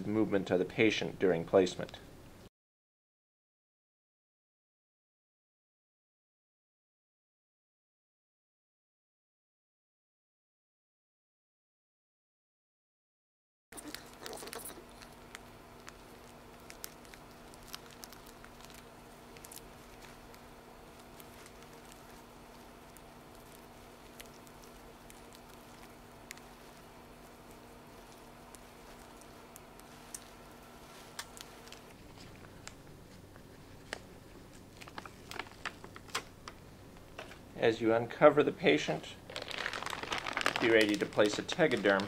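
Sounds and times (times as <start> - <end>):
low electrical hum: 0.0 - 2.5, 13.8 - 42.0
plastic drape crinkling: 13.8 - 36.3, 39.2 - 42.0.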